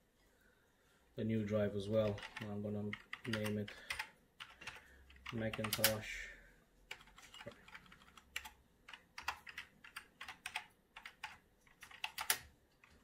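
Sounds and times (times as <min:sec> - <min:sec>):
keyboard typing: 0:02.0 - 0:06.0, 0:06.9 - 0:13.0.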